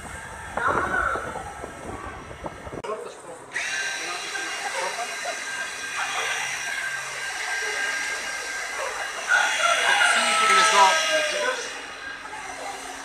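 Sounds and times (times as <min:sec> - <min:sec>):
electric blower whining: 0:03.5 - 0:13.0.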